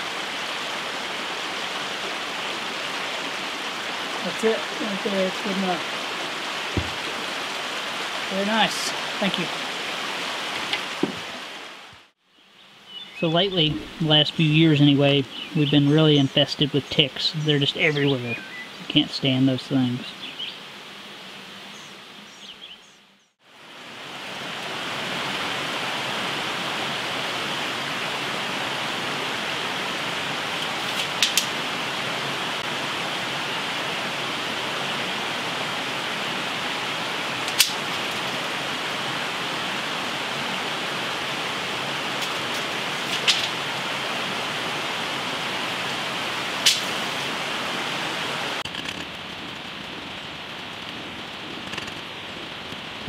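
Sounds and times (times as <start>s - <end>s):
steady rushing hiss: 0.0s - 22.7s, 23.4s - 53.0s
sharp clicks: 46.7s - 46.9s.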